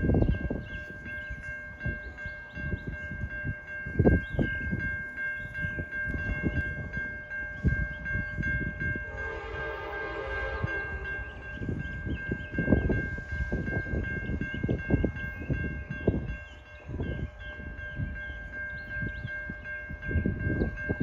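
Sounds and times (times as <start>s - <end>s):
crossing bell ringing rapidly: 0.0s - 21.0s
train horn: 9.0s - 11.8s.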